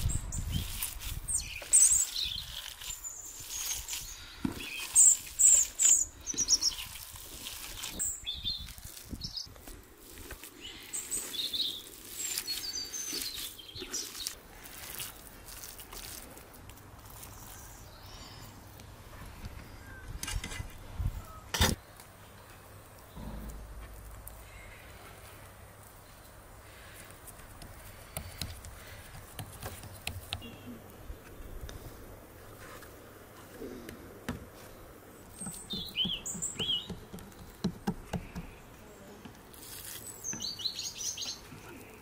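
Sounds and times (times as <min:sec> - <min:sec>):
birds chirping: 0:00.0 - 0:09.5, 0:10.5 - 0:14.4, 0:17.2 - 0:27.2, 0:27.8 - 0:31.8, 0:33.6 - 0:39.1, 0:40.0 - 0:42.0
hands squelching raw minced meat: 0:00.4 - 0:18.0
sharp knock: 0:23.2 - 0:24.0.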